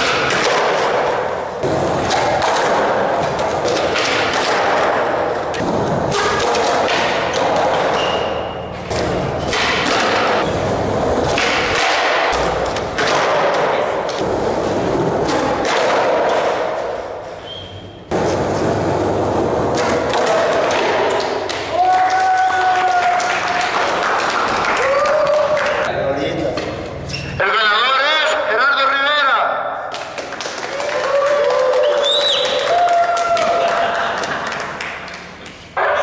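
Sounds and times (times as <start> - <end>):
skateboards popping and landing: 0.0 - 8.3, 8.9 - 17.0, 18.1 - 25.8
skateboard wheels rolling on concrete: 8.9 - 17.4, 18.1 - 25.7.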